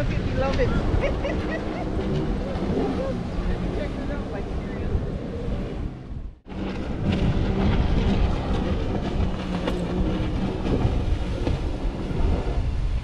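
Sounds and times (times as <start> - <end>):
jet ski engine droning: 0.0 - 13.0
wind buffeting microphone: 0.0 - 13.0.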